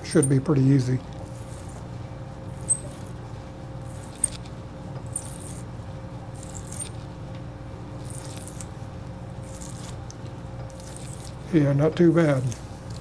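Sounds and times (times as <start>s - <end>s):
steady low hum: 0.0s - 13.0s
tap cutting metal squeaks and clicks: 2.6s - 3.1s.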